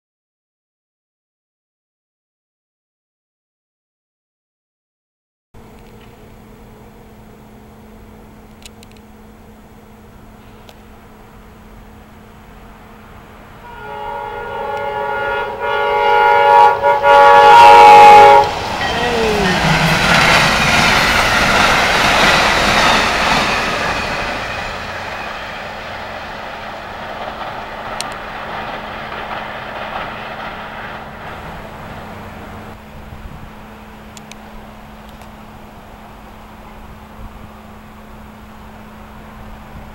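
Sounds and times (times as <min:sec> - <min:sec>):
train wheel and rail noise: 0:05.6 - 0:39.9
train air horn blast: 0:13.6 - 0:19.9.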